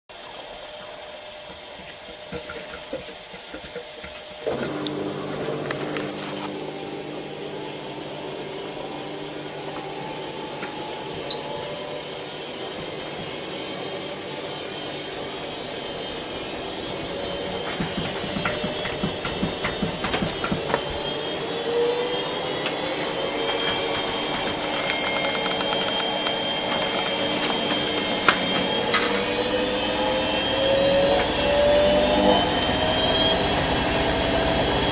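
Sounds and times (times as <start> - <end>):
washing machine spin whine: 0.1 - 34.9
clicks and rattles: 23.4 - 29.3.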